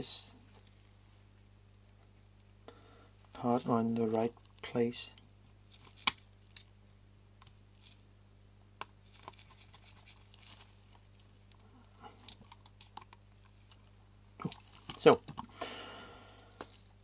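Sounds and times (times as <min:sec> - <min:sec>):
small parts clicking and scratching: 0:03.2 - 0:06.7, 0:07.4 - 0:08.0, 0:08.8 - 0:15.5.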